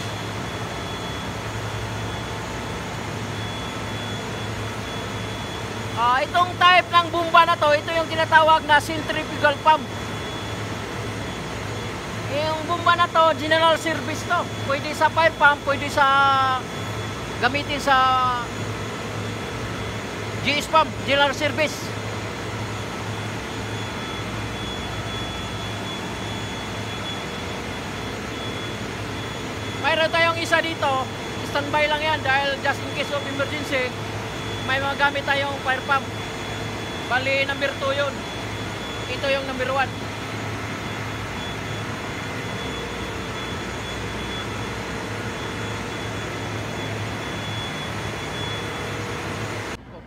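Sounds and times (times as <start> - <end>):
engine room low hum: 0.0 - 50.0
faint steady tones: 0.0 - 50.0
thin high whine: 0.0 - 50.0.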